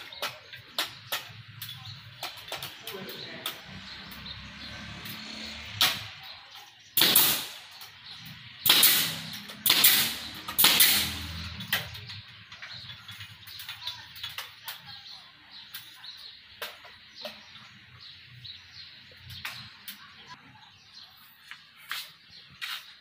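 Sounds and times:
pneumatic nail gun firing: 0:07.0 - 0:07.8, 0:08.6 - 0:11.5.

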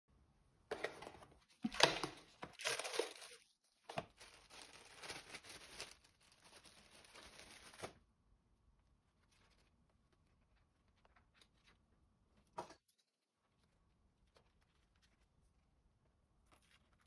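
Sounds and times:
plastic bag crinkling: 0:00.7 - 0:08.0.

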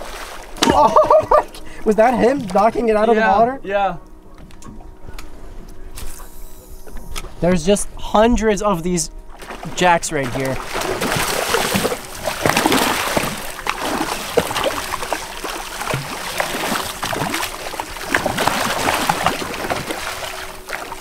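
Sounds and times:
fish splashing at water surface: 0:09.4 - 0:21.0.

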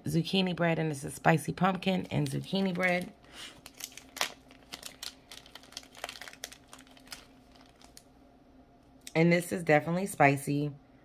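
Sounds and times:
plastic packaging crinkling: 0:01.8 - 0:08.1.

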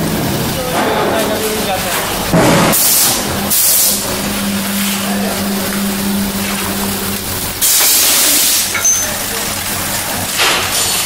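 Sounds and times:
machine humming: 0:00.0 - 0:10.4
air hissing: 0:01.9 - 0:09.4.

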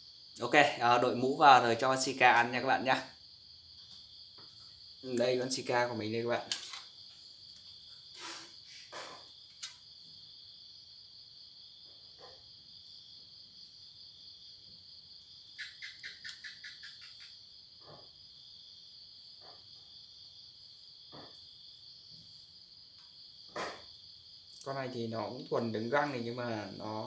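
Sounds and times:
crickets chirring: 0:00.0 - 0:27.0
sharp chirps: 0:15.5 - 0:17.4.

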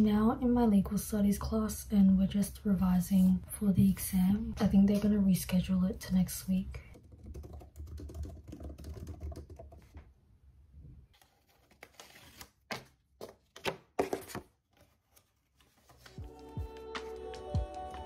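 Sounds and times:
typing on laptop keyboard: 0:06.9 - 0:10.0
paper rustling and crackling: 0:11.1 - 0:16.2.

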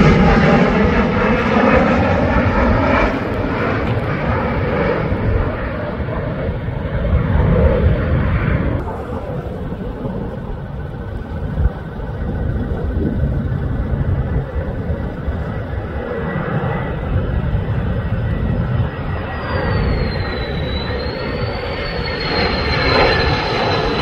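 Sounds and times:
jet engine rumble overhead: 0:00.0 - 0:24.0
faint high whine: 0:08.3 - 0:24.0.

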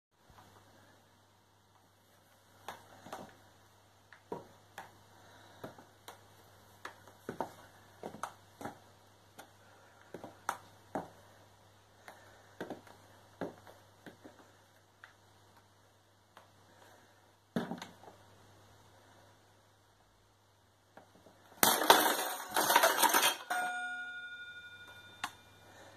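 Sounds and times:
high-heeled boot steps clicking: 0:06.8 - 0:11.2, 0:12.1 - 0:14.4.

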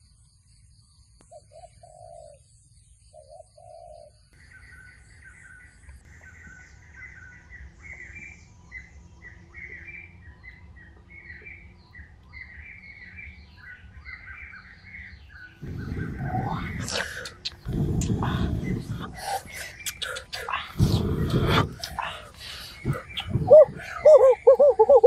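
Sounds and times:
forest birds chirping: 0:00.0 - 0:25.0
dove cooing: 0:01.5 - 0:02.4, 0:03.2 - 0:04.1, 0:15.6 - 0:25.0.

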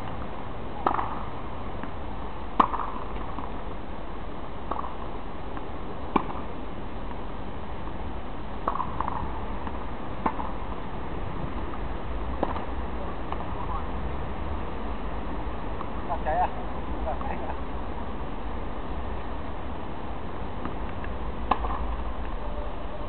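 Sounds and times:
low background noise: 0:00.0 - 0:23.0
tennis ball hit and bouncing: 0:00.8 - 0:02.0, 0:02.6 - 0:03.6, 0:04.7 - 0:05.0, 0:05.6 - 0:06.5, 0:08.6 - 0:10.7, 0:11.5 - 0:13.8, 0:20.6 - 0:22.4.

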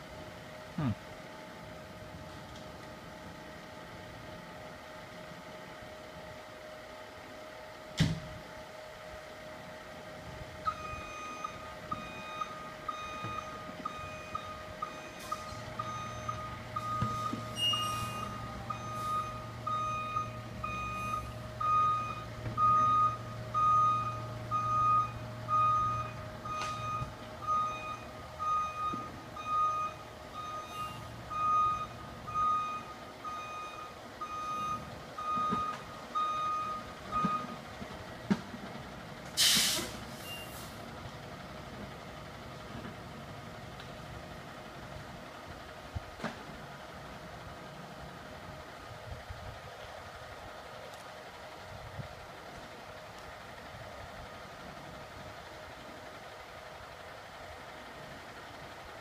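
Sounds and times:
truck engine humming: 0:00.0 - 0:59.0
reversing alarm beeping: 0:10.6 - 0:37.6, 0:40.2 - 0:40.6
air brake hiss: 0:17.6 - 0:18.3, 0:39.4 - 0:40.8.

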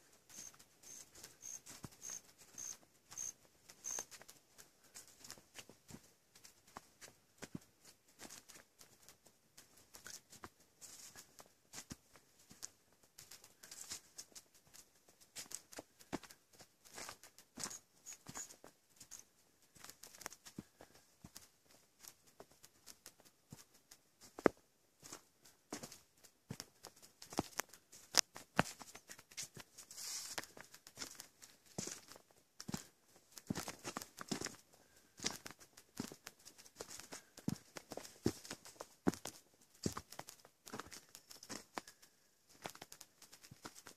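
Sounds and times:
footsteps on dirt trail: 0:00.0 - 0:09.0, 0:15.4 - 0:21.4, 0:24.3 - 0:43.9
grass and leaves brushing: 0:28.8 - 0:32.1.

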